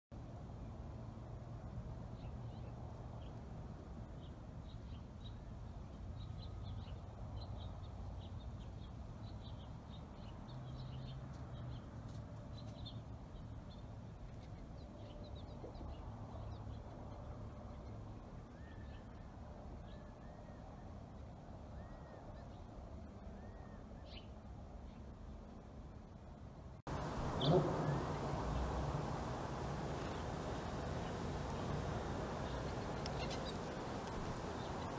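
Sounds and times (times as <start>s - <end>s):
small birds chirping: 4.1s - 20.8s, 26.9s - 34.9s
low steady hum: 26.6s - 34.9s.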